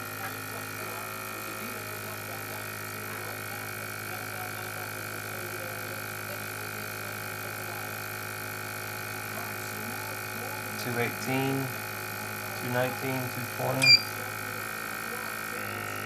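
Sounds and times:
machine hum with high whine: 5.1 - 16.0.

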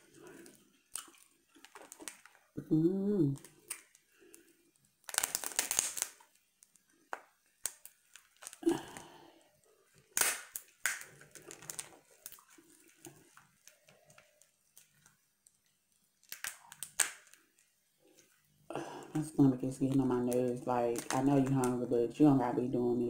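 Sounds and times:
chewing: 0.0 - 2.6, 11.0 - 17.5
lobster shell cracking: 0.2 - 2.5, 3.4 - 9.2, 10.0 - 17.7, 21.0 - 21.5.

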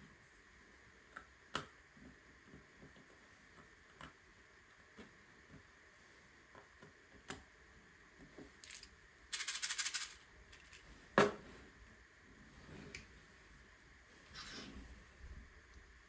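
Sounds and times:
plastic pieces clicking and clattering: 8.6 - 10.8.

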